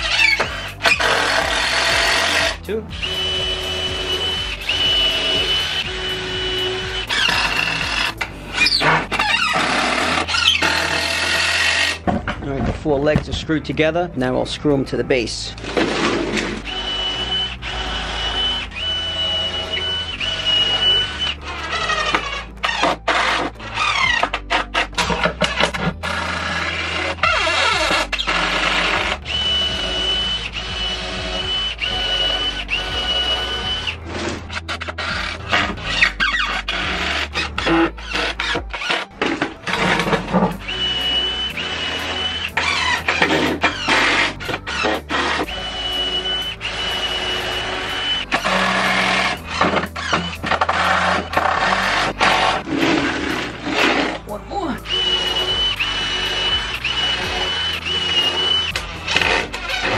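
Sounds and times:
power drill whining: 0.0s - 12.8s, 14.8s - 59.9s.

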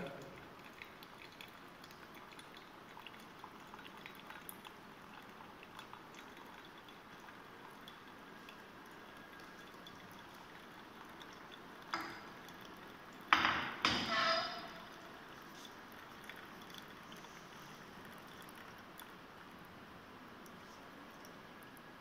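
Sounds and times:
small drip ticks: 0.0s - 13.3s, 15.3s - 19.8s, 20.4s - 22.0s
liquid trickling through filter: 0.0s - 22.0s.

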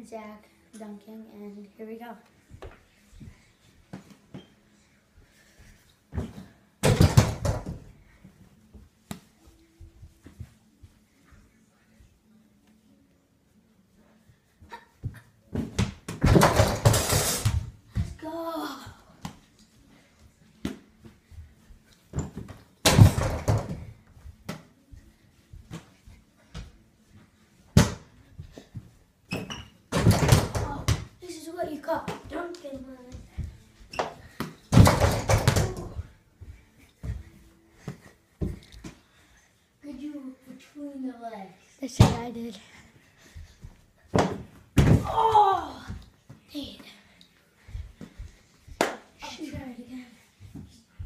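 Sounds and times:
ball rattling hoop and door: 15.6s - 17.7s, 22.2s - 23.9s, 29.3s - 31.1s, 34.7s - 36.0s.

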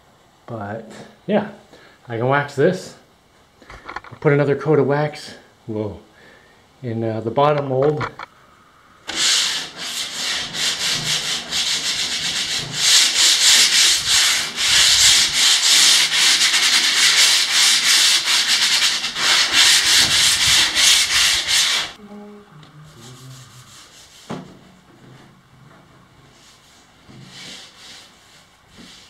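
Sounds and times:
sandpaper rubbing on wood: 9.1s - 22.0s, 23.0s - 24.4s, 26.4s - 29.0s.

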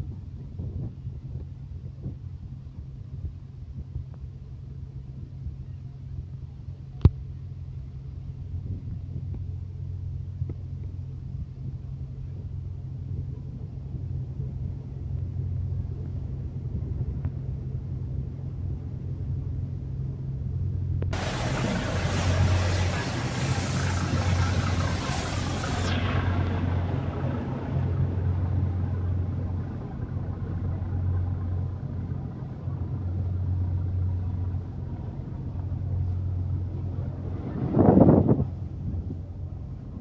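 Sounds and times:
boat engine droning: 0.0s - 40.0s
broad rushing noise: 21.1s - 40.0s.

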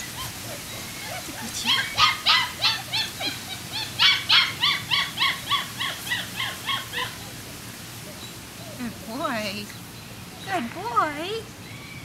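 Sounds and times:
puppy yipping: 0.0s - 7.4s.

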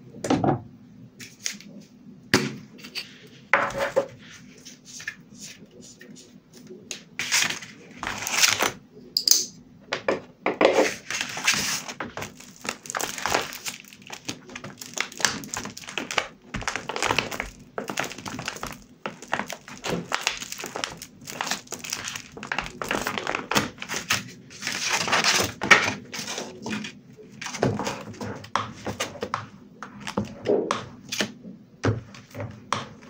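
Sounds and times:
paper rustling: 6.6s - 8.8s, 10.8s - 30.4s.

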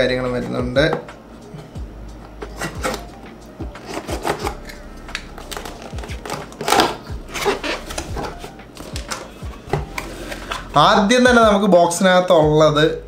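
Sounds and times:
box packaging rustling and scraping: 2.4s - 11.0s.

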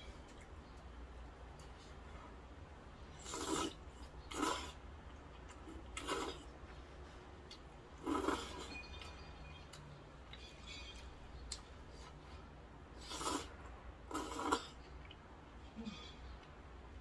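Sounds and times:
noodles being slurped: 3.2s - 4.8s, 5.9s - 6.5s, 13.0s - 14.7s.

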